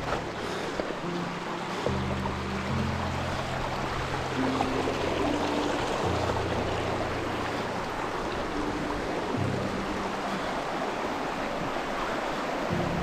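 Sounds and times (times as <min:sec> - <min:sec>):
background music low notes: 0:00.0 - 0:13.0
rushing creek water: 0:00.0 - 0:13.0.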